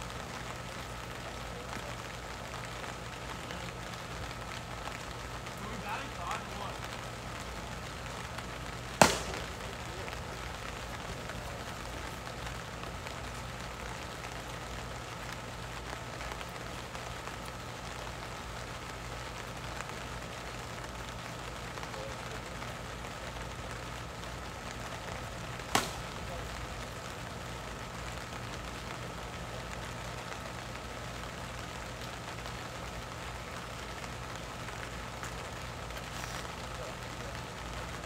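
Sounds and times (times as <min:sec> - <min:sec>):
outdoor background noise: 0:00.0 - 0:38.0
plastic ball striking bat: 0:09.0 - 0:09.6, 0:25.7 - 0:26.2.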